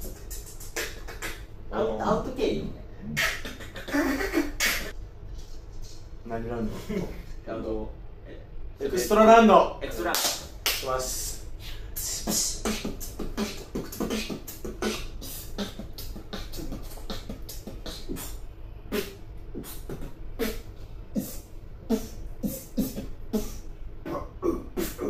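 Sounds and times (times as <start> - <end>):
beatboxing: 0.0 - 1.5, 3.0 - 5.0, 10.1 - 25.0.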